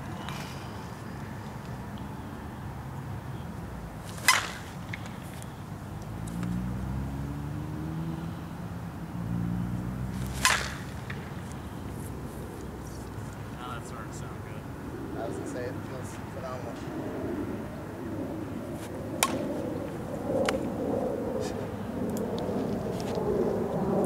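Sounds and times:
bat cracking against softball: 0:04.0 - 0:06.6, 0:10.1 - 0:12.7, 0:18.8 - 0:20.7.

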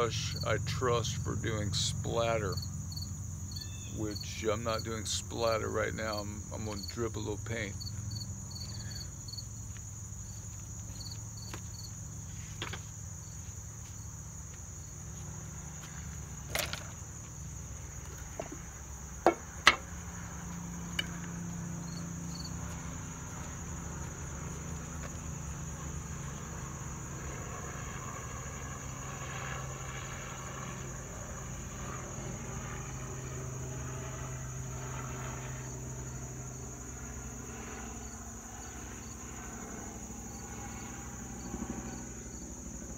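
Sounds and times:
insects chirring: 0:00.0 - 0:42.9
phone being handled knocks: 0:19.2 - 0:19.8.

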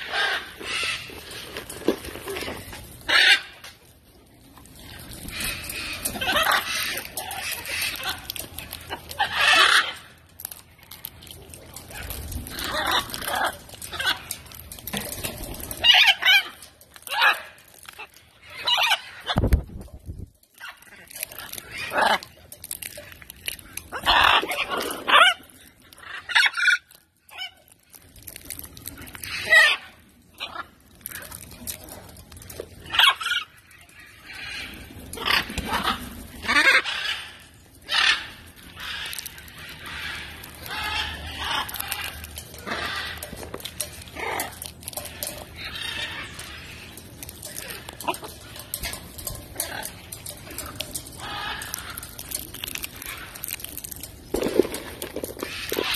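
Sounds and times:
macaws squawking: 0:03.0 - 0:03.6.

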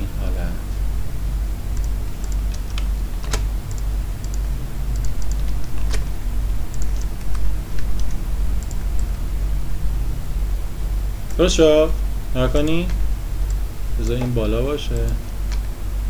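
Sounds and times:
steady low hum: 0:00.0 - 0:16.0
computer keyboard keys clicking: 0:01.7 - 0:06.1, 0:06.7 - 0:09.2, 0:13.5 - 0:15.6.

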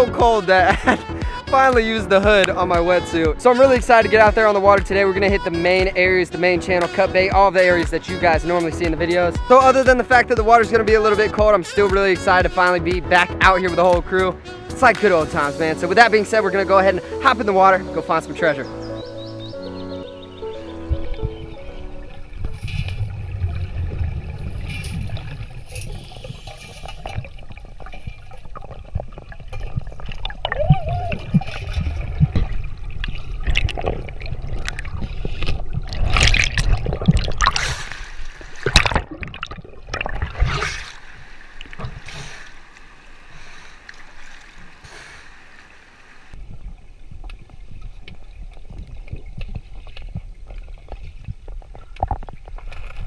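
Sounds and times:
water sloshing and gurgling: 0:13.4 - 0:53.0
loud splashes: 0:29.6 - 0:42.7.

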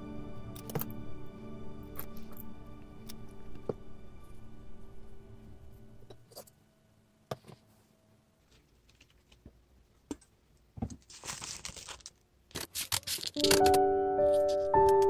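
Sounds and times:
material crinkling and rustling: 0:08.4 - 0:09.6, 0:10.8 - 0:13.7.

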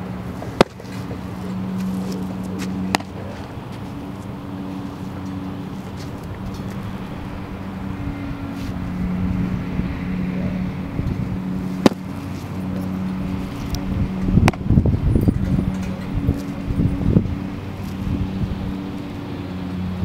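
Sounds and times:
low mechanical hum: 0:00.0 - 0:20.0
ball popping into catcher's mitt: 0:00.5 - 0:01.1, 0:11.8 - 0:12.1, 0:14.4 - 0:14.7.

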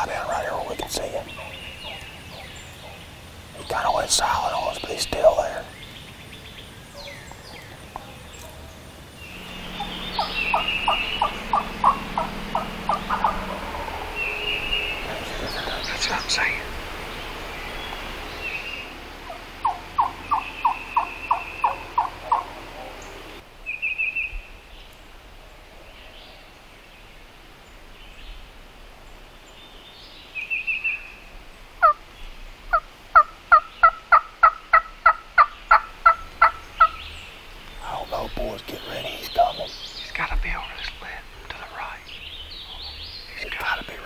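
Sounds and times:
turkey yelping: 0:09.8 - 0:14.2, 0:19.3 - 0:23.0.

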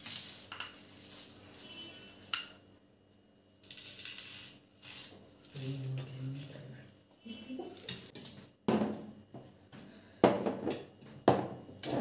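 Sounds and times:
rustling scrape of snack mixture: 0:00.0 - 0:02.3, 0:03.6 - 0:06.6
spoon clinking on steel plates: 0:00.0 - 0:02.7, 0:07.6 - 0:08.3.

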